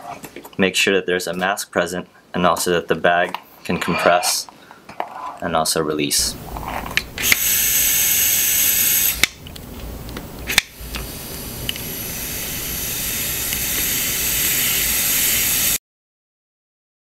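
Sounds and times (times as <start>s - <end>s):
vacuum regulator hissing: 6.2s - 15.8s.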